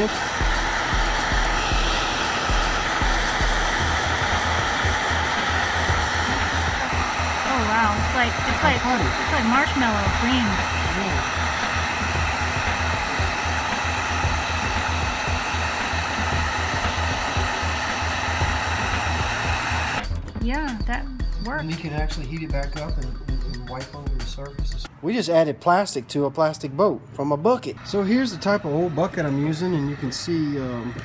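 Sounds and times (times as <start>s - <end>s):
heat gun blowing hot air: 0.0s - 20.2s, 27.8s - 31.0s.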